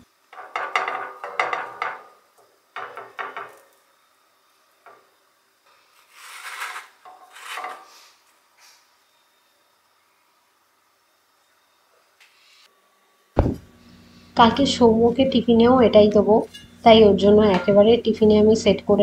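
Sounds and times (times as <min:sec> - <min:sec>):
spatula scraping pan: 0:05.8 - 0:08.2.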